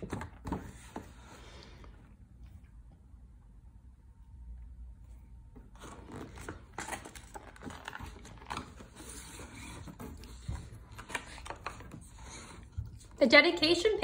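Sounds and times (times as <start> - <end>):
book pages turning and rustling: 0.0 - 1.8, 5.5 - 13.2.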